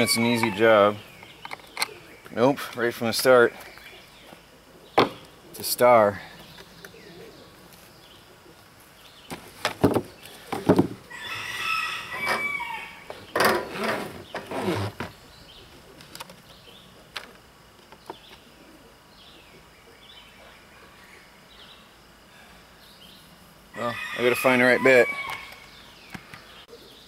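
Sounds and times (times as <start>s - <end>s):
rooster crowing: 0.0s - 0.8s, 11.1s - 13.2s, 23.7s - 25.6s.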